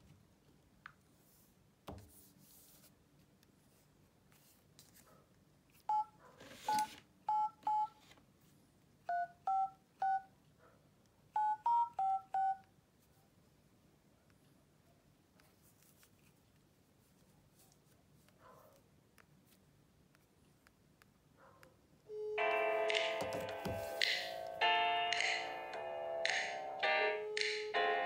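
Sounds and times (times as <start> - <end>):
two-tone keypad beeps: 5.9 - 6.1, 6.7 - 8.0, 9.1 - 10.3, 11.4 - 12.6.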